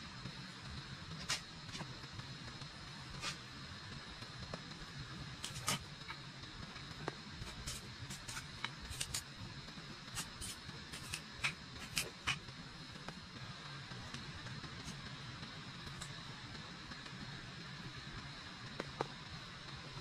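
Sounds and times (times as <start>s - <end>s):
steady background hiss: 0.0s - 20.0s
knife splitting kindling sticks: 5.4s - 6.2s, 7.4s - 9.3s, 10.1s - 12.4s.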